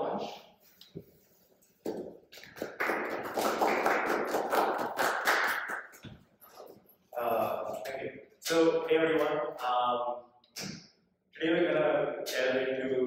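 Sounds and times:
audience applauding: 2.4 - 6.0.

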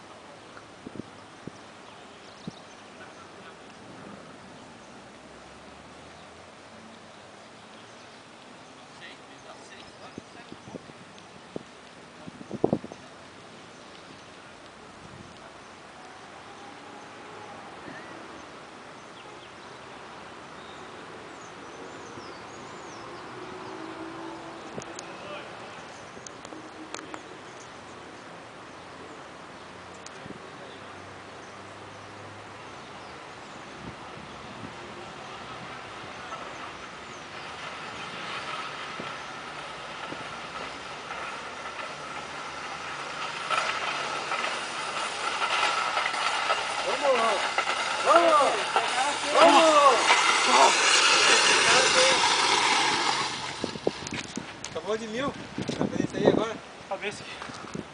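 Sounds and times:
outdoor background noise: 0.0 - 57.9
sled scraping on track: 34.0 - 57.9.

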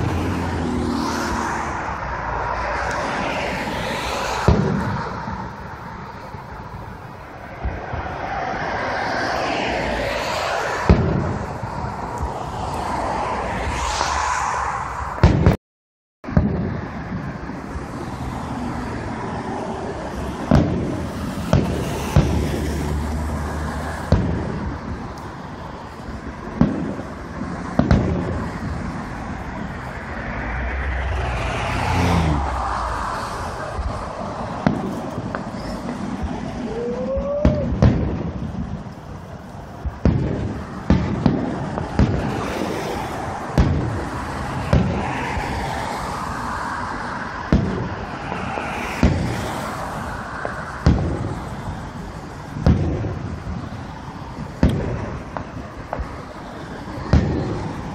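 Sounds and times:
distant fireworks booming: 0.0 - 15.6, 16.2 - 57.9
rising firework whistle: 0.0 - 15.6, 27.8 - 38.9.

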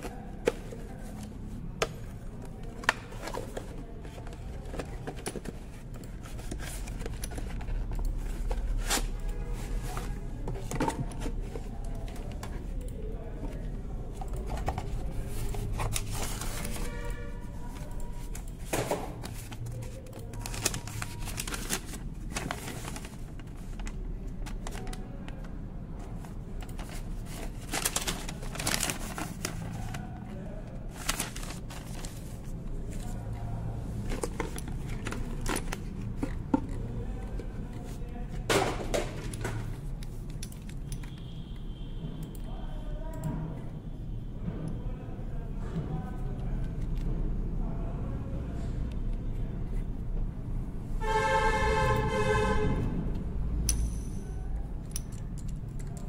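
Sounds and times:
cardboard and paper rustling: 0.0 - 40.8.

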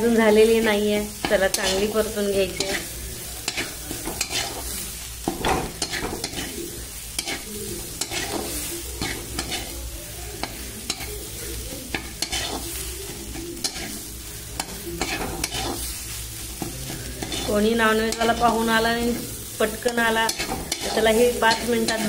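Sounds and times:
faint sizzle of eggs frying: 0.0 - 22.0
spatula scraping frying pan: 0.1 - 22.0.

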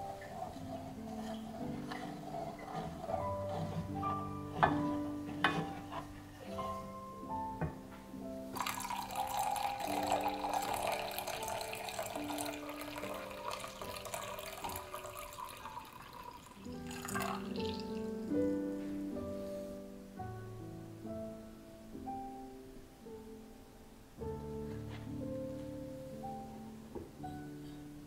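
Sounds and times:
soft piano music: 0.0 - 28.0
liquid pouring into a mug: 8.6 - 18.2.

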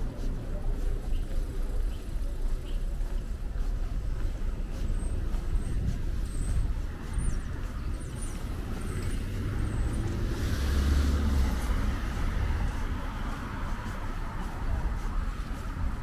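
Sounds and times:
low rumble of passing vehicles: 0.0 - 16.0.

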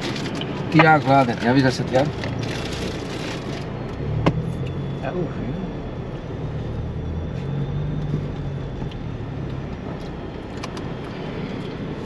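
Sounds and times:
car engine humming: 0.0 - 12.0
driving noise: 0.0 - 12.0.

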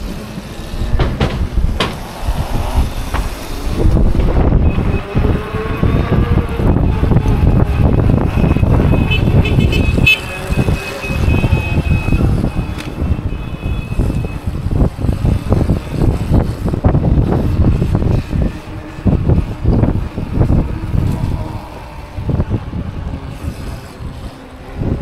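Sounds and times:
wind buffeting microphone: 0.0 - 25.0
horns honking: 4.4 - 6.9, 8.1 - 14.6.

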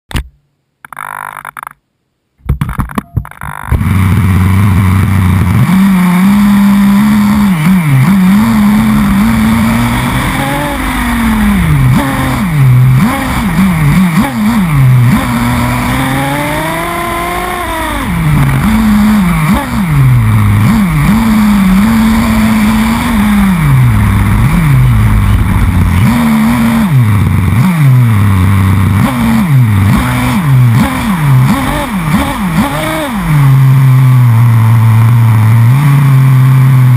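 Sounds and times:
knocks: 2.4 - 3.8
model engine revving: 3.4 - 36.9.

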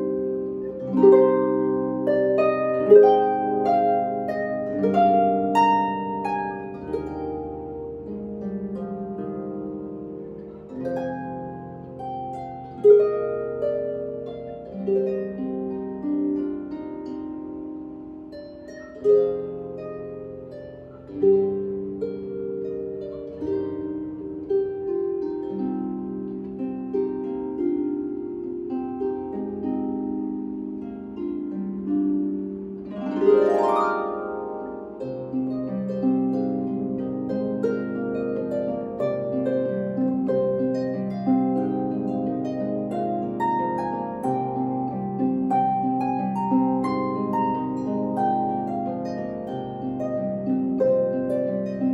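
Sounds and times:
harp playing a melody: 0.0 - 51.9.

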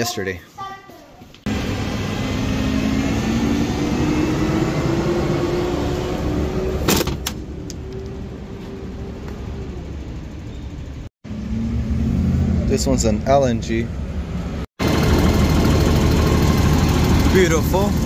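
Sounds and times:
garbage truck engine drone: 1.5 - 12.7, 14.1 - 18.0.

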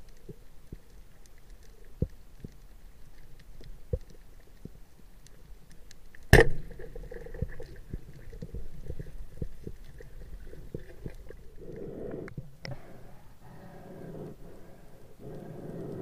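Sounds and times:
faint clicks and knocks: 0.0 - 12.8
speargun firing underwater: 6.3 - 6.8.

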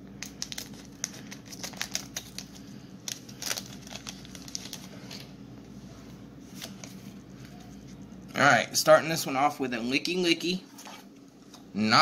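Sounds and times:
scissors cutting foil pack: 0.2 - 4.9
foil wrapper crinkling: 0.2 - 5.3.

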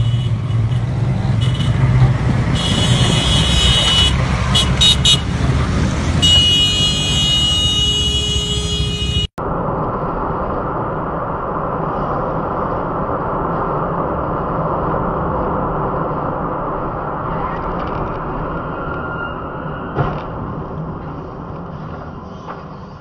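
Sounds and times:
road noise inside moving car: 0.0 - 23.0
vehicle engine rumbling: 0.0 - 23.0
vehicle horn blasts: 2.5 - 5.3, 6.2 - 9.3.

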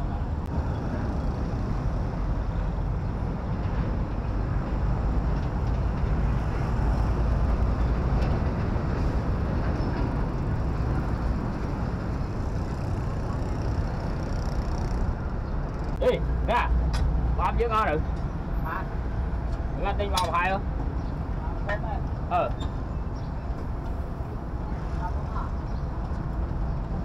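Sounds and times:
street traffic rumble: 0.0 - 27.0.

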